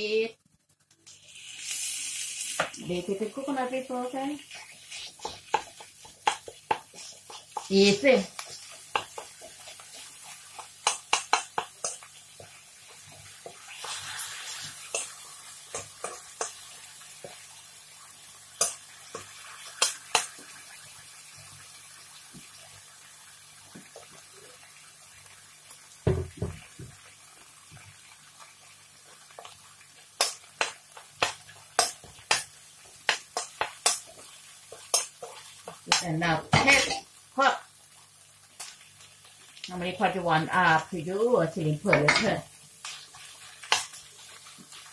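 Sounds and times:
faint sizzle: 0.0s - 44.9s
spoon scraping and clinking on wok: 4.9s - 12.5s, 13.4s - 17.4s
dull knock: 26.1s - 27.0s.

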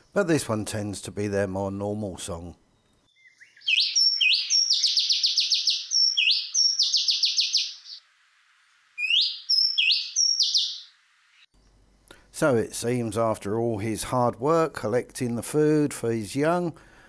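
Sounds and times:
bird singing sharp notes: 2.7s - 8.0s, 9.0s - 11.5s.

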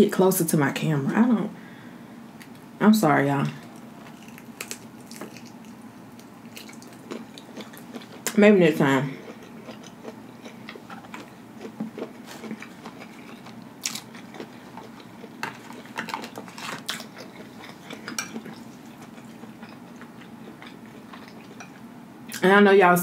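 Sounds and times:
person chewing fried shrimp: 3.6s - 8.4s, 9.1s - 21.9s.

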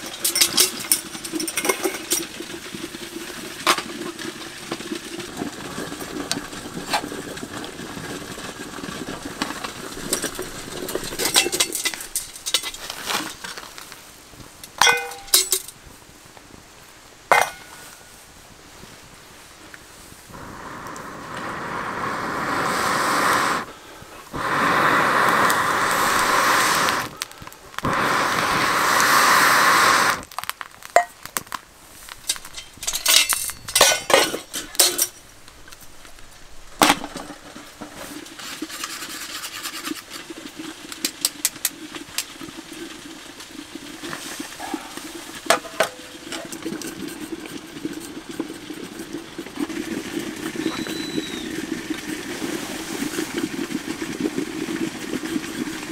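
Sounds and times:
fire burning and crackling: 0.0s - 55.9s
air blown through metal pipe: 20.3s - 27.2s, 27.8s - 30.2s.

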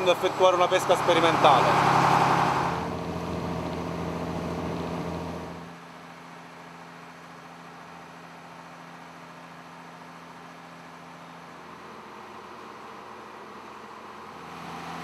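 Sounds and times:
boat engine running: 0.0s - 5.7s.

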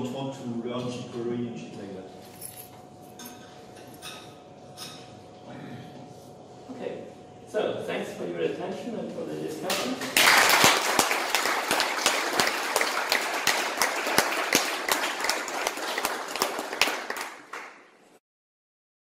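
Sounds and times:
audience applauding: 10.0s - 18.0s.

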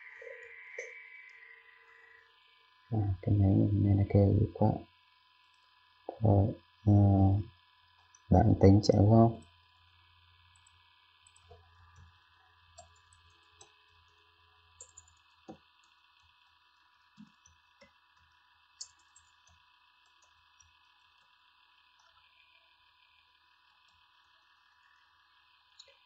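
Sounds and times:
low hum: 0.0s - 4.8s, 6.1s - 7.5s, 8.3s - 10.0s
computer keyboard typing: 14.8s - 15.2s.

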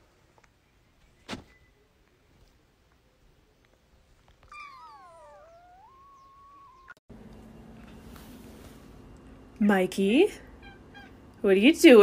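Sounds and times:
cat meowing: 4.4s - 7.0s.

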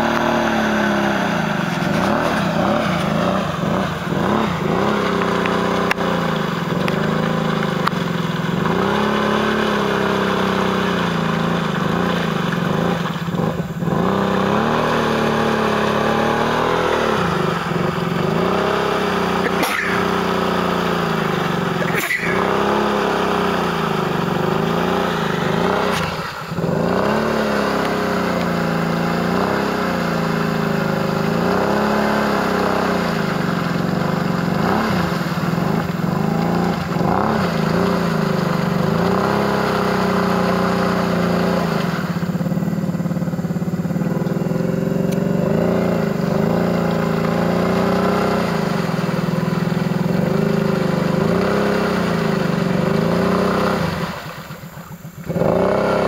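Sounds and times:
quad churning through water: 0.0s - 56.0s
quad engine revving: 0.0s - 56.0s.

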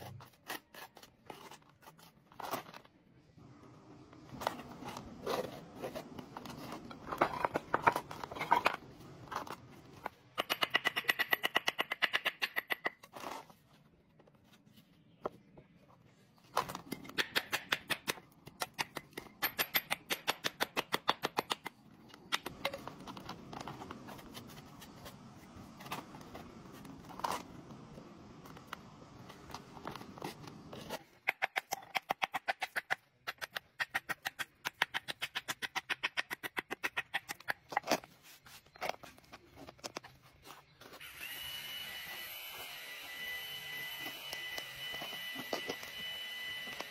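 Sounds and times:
hammer tapping stones: 10.4s - 13.0s, 17.0s - 23.0s.

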